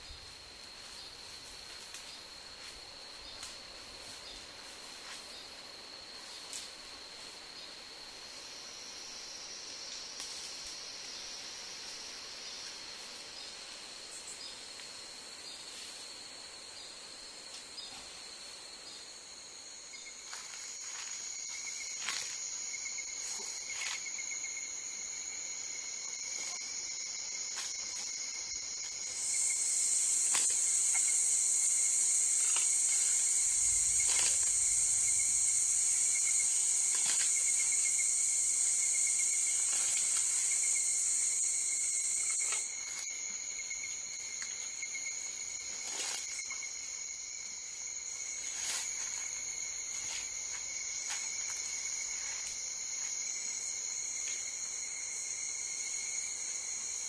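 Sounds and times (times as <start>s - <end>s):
insects trilling: 0.0s - 57.0s
loud high insect trill: 0.0s - 57.0s.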